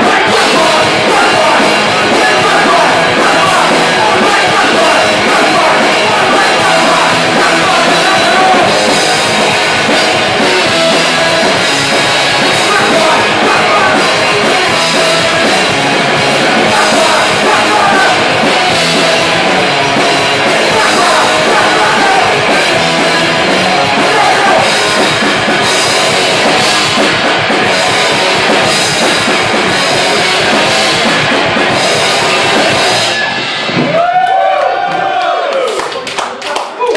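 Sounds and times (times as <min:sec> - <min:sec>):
person singing: 0:00.0 - 0:25.3
drum kit with cymbals: 0:00.0 - 0:34.0
electric guitars: 0:00.0 - 0:35.6.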